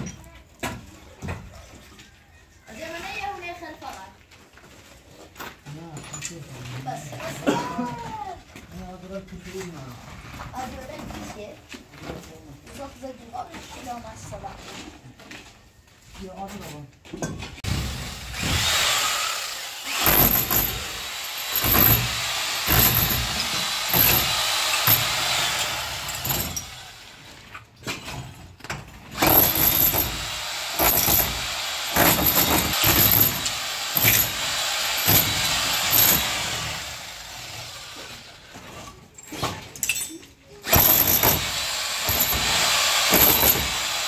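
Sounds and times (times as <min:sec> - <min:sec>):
hammer drill boring into masonry: 0:18.0 - 0:27.3, 0:29.1 - 0:38.3, 0:40.6 - 0:44.0.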